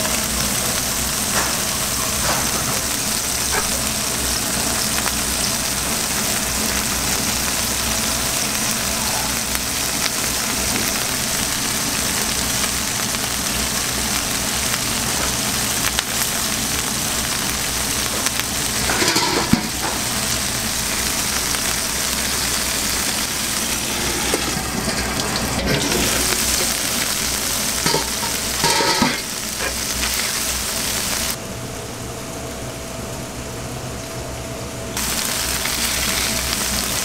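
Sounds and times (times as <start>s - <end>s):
burgers sizzling on griddle: 0.0s - 31.4s, 35.0s - 37.0s
metal utensils scraping and clinking: 18.8s - 19.8s, 27.8s - 30.2s.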